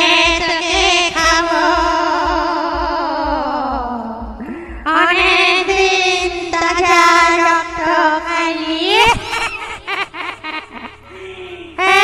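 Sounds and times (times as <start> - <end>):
ghostly wailing voice: 11.0 - 12.0.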